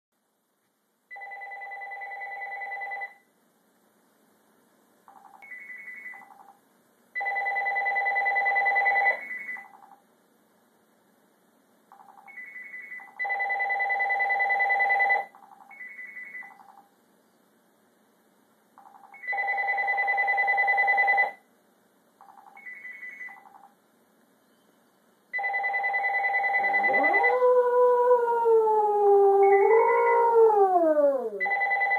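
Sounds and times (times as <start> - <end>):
telephone ringing: 1.1 - 3.2, 7.2 - 9.8, 12.0 - 16.8, 18.8 - 21.4, 22.2 - 23.7, 25.4 - 26.9, 31.4 - 31.9.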